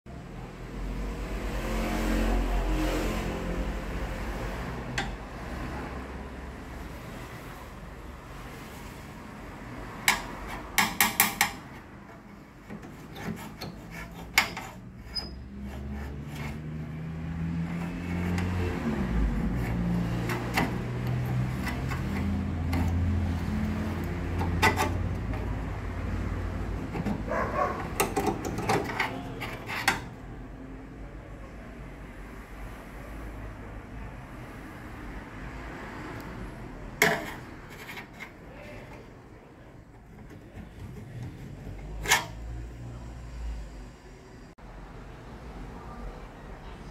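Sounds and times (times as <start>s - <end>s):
screwdriver scraping metal terminals: 12.7s - 16.7s, 19.4s - 25.5s, 26.8s - 30.2s.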